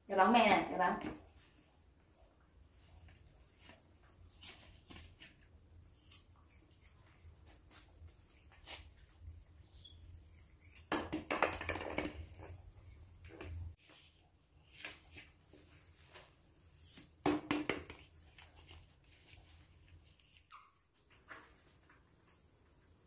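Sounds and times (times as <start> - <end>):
plastic ball tapping on concrete: 10.9 - 12.3.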